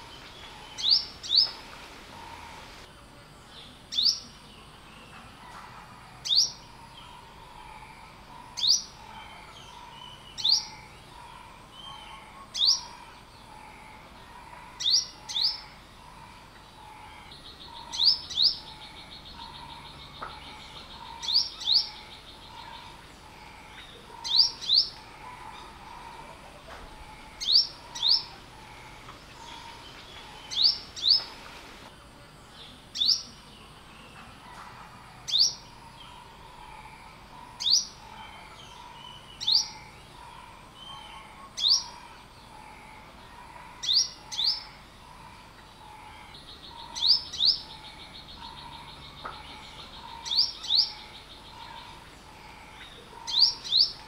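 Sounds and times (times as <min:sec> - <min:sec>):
sunbird high chirps: 0:00.0 - 0:02.7, 0:27.0 - 0:31.8.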